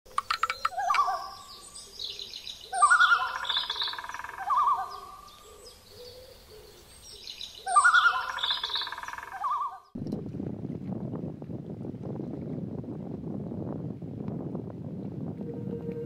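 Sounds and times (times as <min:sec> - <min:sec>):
warbling bird calls: 0:00.1 - 0:10.0
high bird chirps: 0:00.2 - 0:06.2, 0:07.1 - 0:09.9.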